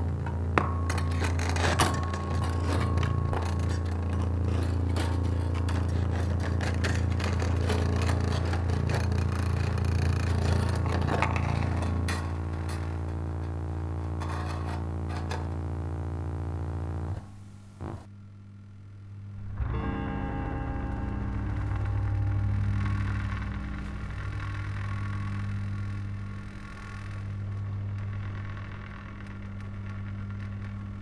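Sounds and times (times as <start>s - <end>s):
scraping and clicking on strings: 0.0s - 17.2s, 20.6s - 31.0s
low droning guitar hum: 0.0s - 31.0s.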